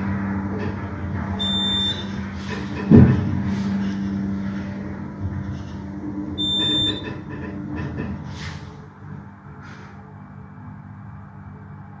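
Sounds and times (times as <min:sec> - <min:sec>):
elevator drive humming: 0:00.0 - 0:12.0
short high electronic beep: 0:06.4 - 0:07.0.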